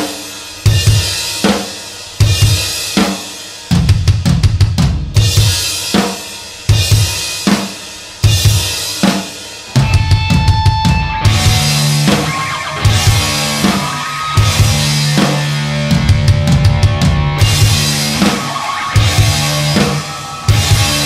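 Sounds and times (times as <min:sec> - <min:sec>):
drum kit playing: 0:00.0 - 0:21.0
cymbals crashing: 0:09.7 - 0:16.1, 0:16.7 - 0:21.0.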